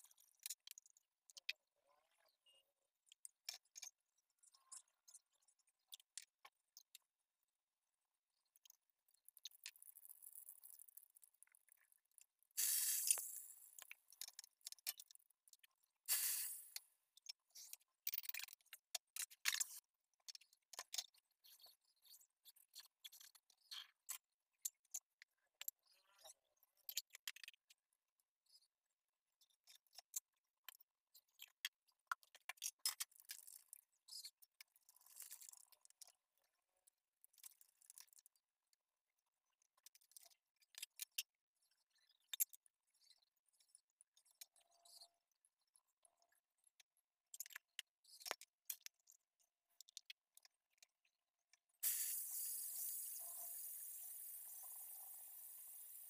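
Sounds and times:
vegetables hissing in a pan: 12.6s - 13.7s, 16.1s - 16.8s, 51.8s - 56.0s
potatoes sizzling in hot oil: 12.6s - 13.8s, 16.1s - 16.8s, 51.8s - 56.0s.

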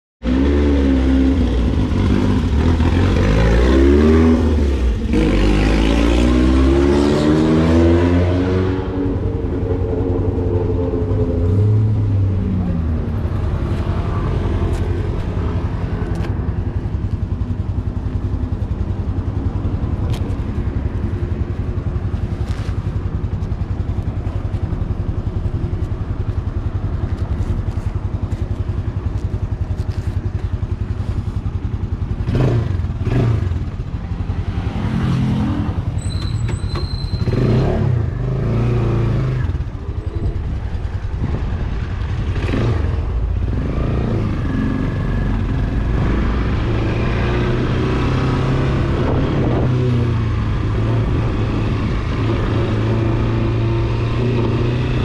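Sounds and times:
motorcycle engine revving: 0.2s - 55.0s
motorcycle engine idling: 12.0s - 34.6s.

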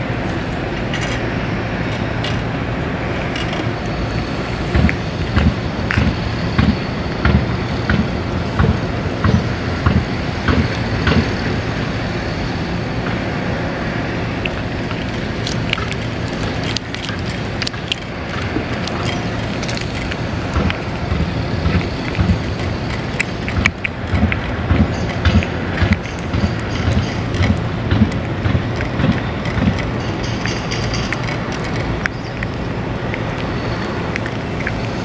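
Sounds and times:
cat chewing and licking: 14.3s - 35.0s.

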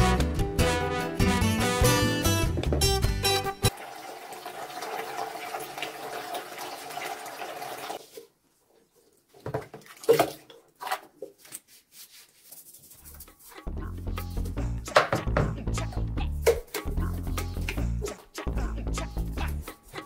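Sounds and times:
tap water running into sink: 3.7s - 8.0s.

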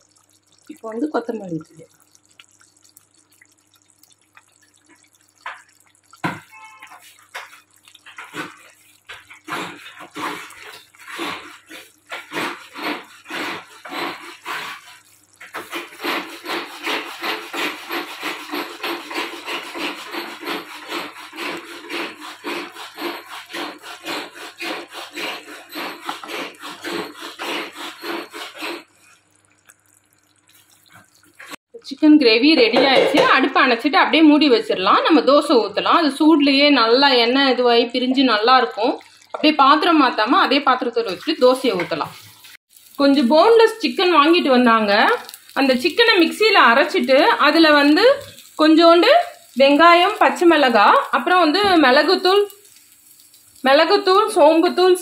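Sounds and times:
gravy plopping in a pan: 0.0s - 20.8s, 28.8s - 31.6s, 35.2s - 54.8s.

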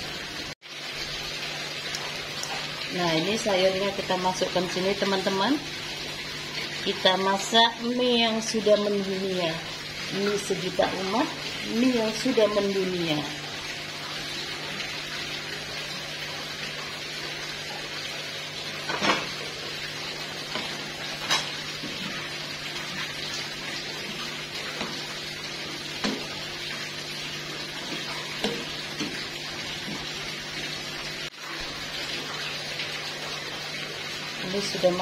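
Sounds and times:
water boiling in a pan: 0.0s - 35.0s.

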